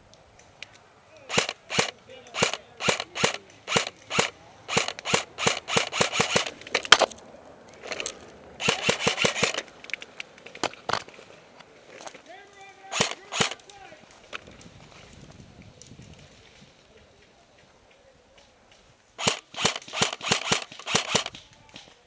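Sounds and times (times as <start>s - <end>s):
airsoft guns firing: 1.2s - 7.1s, 7.8s - 9.8s, 12.8s - 14.0s, 19.2s - 22.0s.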